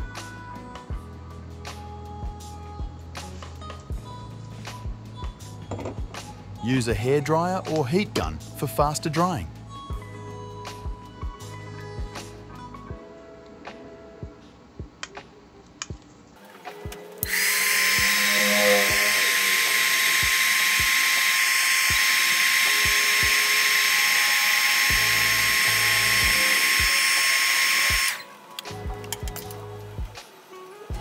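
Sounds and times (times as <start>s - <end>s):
heat gun blowing air: 17.2s - 28.4s.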